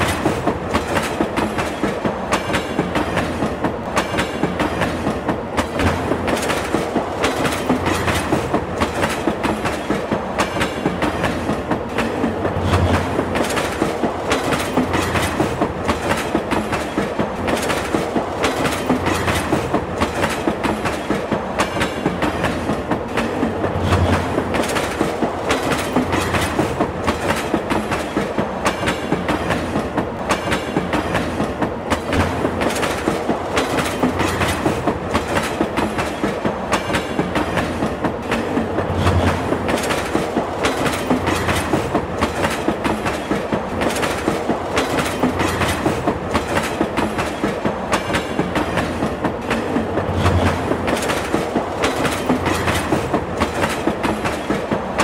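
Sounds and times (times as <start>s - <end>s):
train wheels clacking on rail joints: 0.0s - 55.0s.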